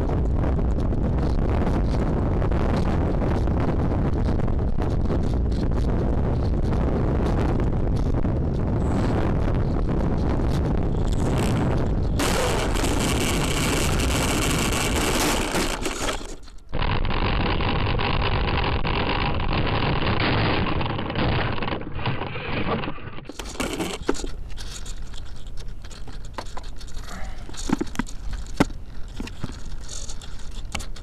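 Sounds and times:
wind rushing: 0.0s - 16.8s
model airplane propeller: 0.0s - 31.0s.

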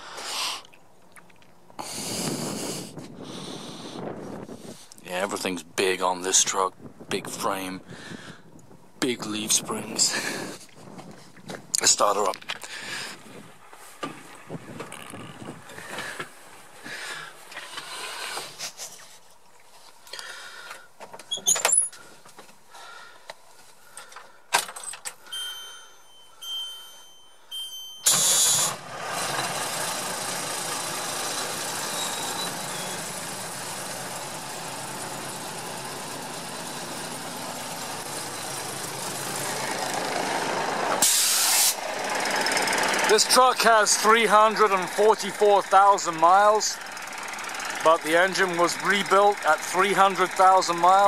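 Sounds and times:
diesel engine starting and idling: 25.2s - 51.0s
high pulsing beep: 25.4s - 28.6s.

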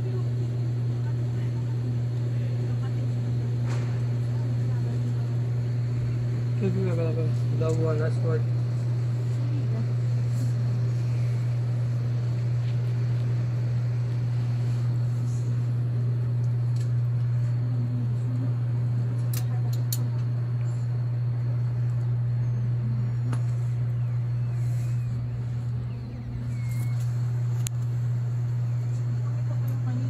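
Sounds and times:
steady low hum: 0.0s - 30.0s
faint voices: 17.3s - 30.0s.

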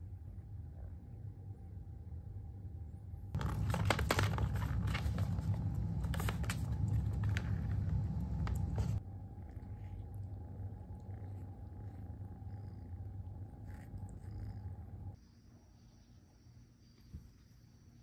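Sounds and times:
low rumble: 3.4s - 15.2s.

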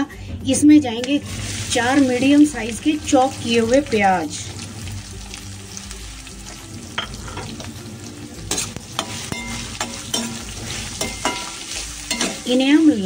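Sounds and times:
onions sizzling in hot oil: 1.1s - 13.0s
spatula scraping metal pan: 8.4s - 12.5s.

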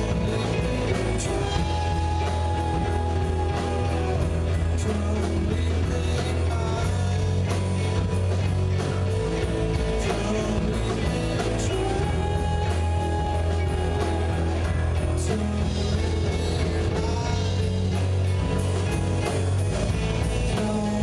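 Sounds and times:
live rock band playing: 0.0s - 21.0s.

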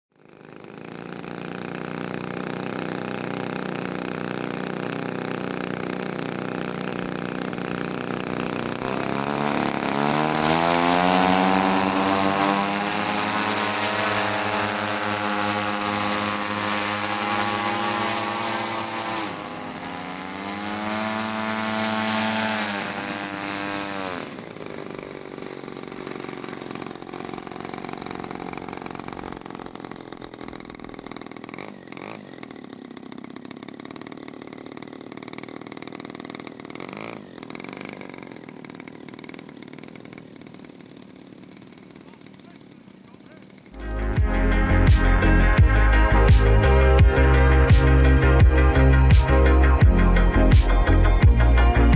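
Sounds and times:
model plane piston engine: 0.1s - 51.6s.

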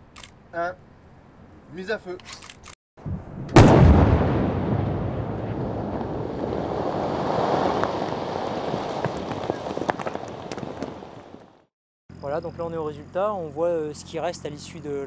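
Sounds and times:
very loud explosion blast: 3.0s - 11.1s
sand and debris raining down: 4.6s - 11.7s.

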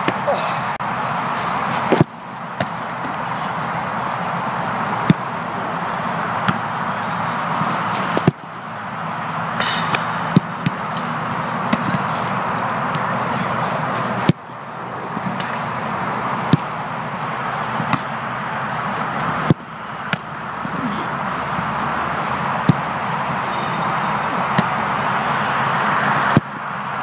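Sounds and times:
football being kicked: 5.0s - 5.3s, 6.4s - 6.7s, 9.7s - 11.1s, 16.4s - 16.7s, 19.3s - 21.9s, 22.6s - 22.9s.

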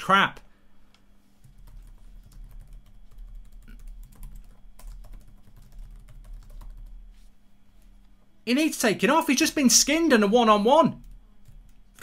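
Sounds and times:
low electrical hum: 0.0s - 12.0s
keyboard typing: 1.4s - 7.0s.

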